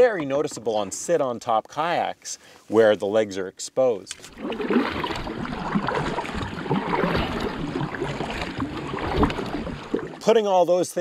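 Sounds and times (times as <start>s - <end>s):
water splashing against kayak: 0.0s - 1.3s, 4.1s - 10.6s.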